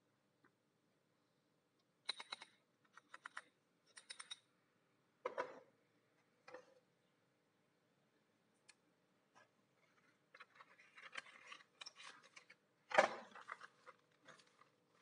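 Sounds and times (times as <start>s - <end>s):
sharp metallic clicks: 2.0s - 4.4s.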